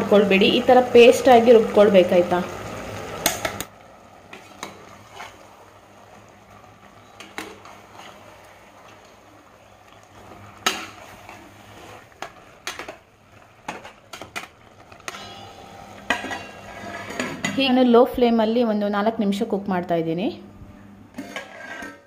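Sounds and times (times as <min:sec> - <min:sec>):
metal ladle scraping a pot: 0:04.3 - 0:05.4, 0:07.0 - 0:08.3, 0:14.9 - 0:17.6, 0:21.1 - 0:22.0.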